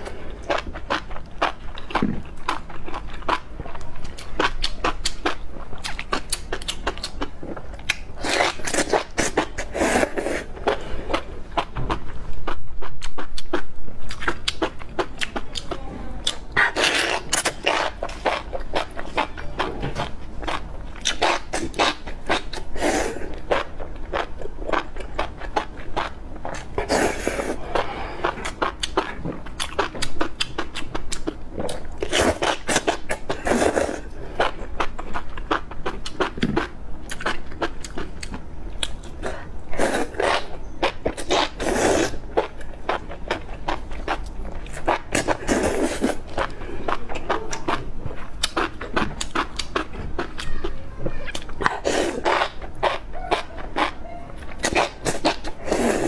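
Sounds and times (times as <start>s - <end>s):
wet chewing and mouth clicks: 0.4s - 56.0s
slurping: 16.5s - 19.4s, 44.8s - 47.7s, 54.6s - 56.0s.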